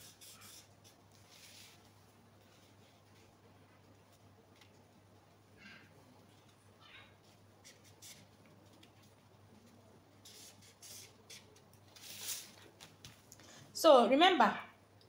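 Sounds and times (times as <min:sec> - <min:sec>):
marker scratching on paper: 0:00.0 - 0:01.8, 0:07.6 - 0:08.3, 0:10.2 - 0:12.5.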